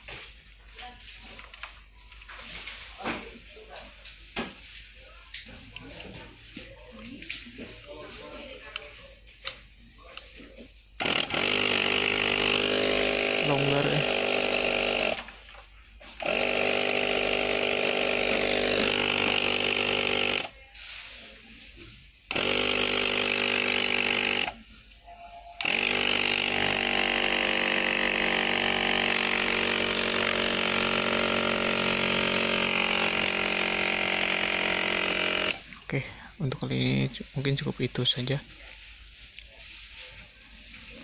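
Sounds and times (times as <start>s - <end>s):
air compressor motor buzz: 11.0s - 15.3s, 16.2s - 20.5s, 22.3s - 24.6s, 25.6s - 35.6s.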